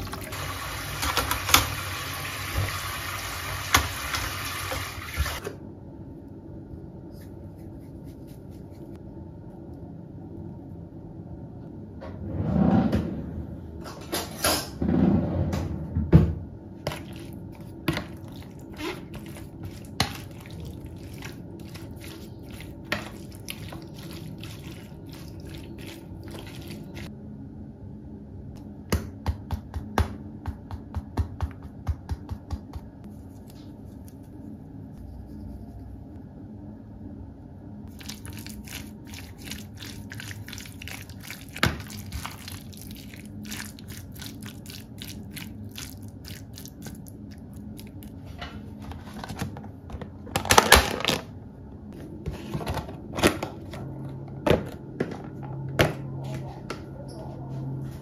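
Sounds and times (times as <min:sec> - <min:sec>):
wet squishing of raw chicken: 0:16.9 - 0:27.1, 0:37.9 - 0:48.2.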